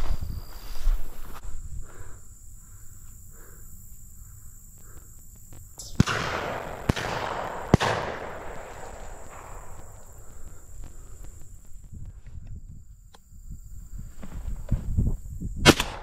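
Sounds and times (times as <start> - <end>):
shotgun shots: 5.8 - 10.4, 15.6 - 16.0.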